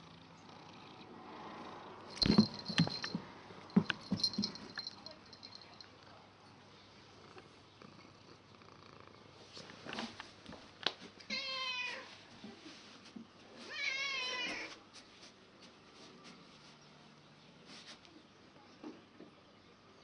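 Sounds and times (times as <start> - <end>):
cat meowing: 11.3 - 12.1, 13.7 - 14.7.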